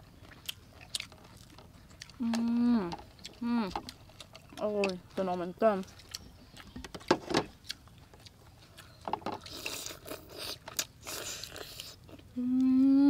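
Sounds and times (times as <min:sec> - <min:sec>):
chewing clicks and smacks: 0:00.2 - 0:02.2, 0:05.8 - 0:12.2.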